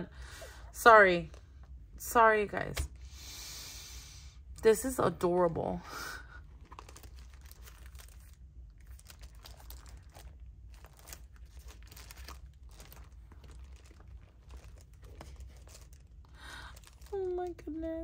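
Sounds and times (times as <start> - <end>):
packaging crinkling: 6.3 - 17.9.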